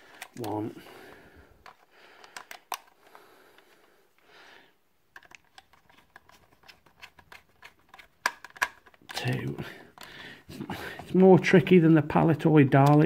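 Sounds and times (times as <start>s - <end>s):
plastic toy clicks and taps: 1.6s - 2.9s, 5.2s - 9.4s.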